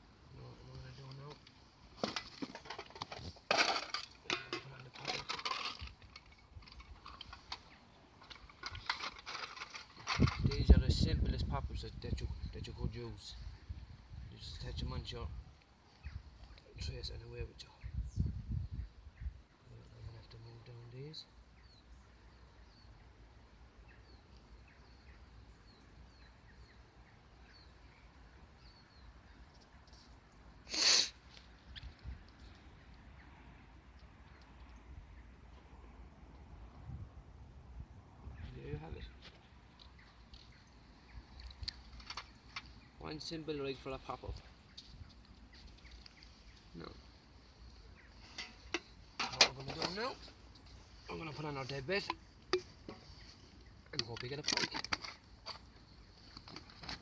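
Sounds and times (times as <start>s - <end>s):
small items rattling: 2.0s - 10.7s, 53.9s - 55.7s
small bird chirping: 17.6s - 30.5s, 38.4s - 49.2s
loud hiss near microphone: 30.1s - 31.4s.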